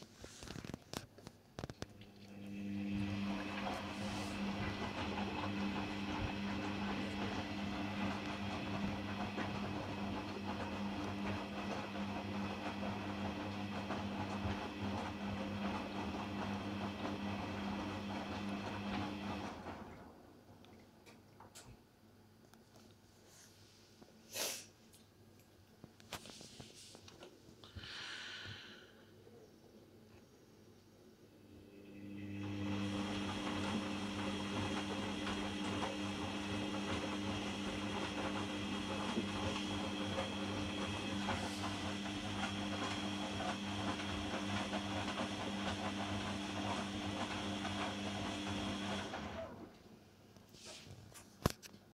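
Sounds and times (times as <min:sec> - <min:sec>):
washing machine motor humming: 0:01.6 - 0:21.8, 0:31.4 - 0:50.0
water and clothes sloshing: 0:01.9 - 0:20.0.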